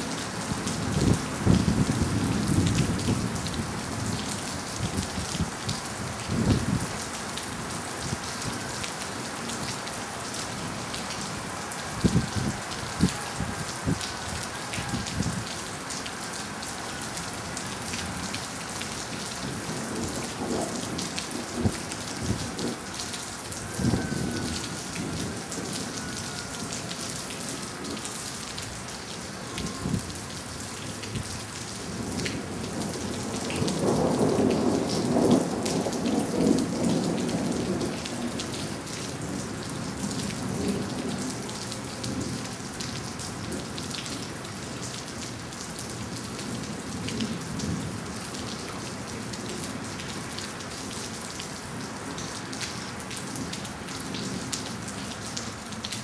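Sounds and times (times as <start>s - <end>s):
steady rain: 0.0s - 56.0s
thunder rumbling: 19.4s - 22.9s.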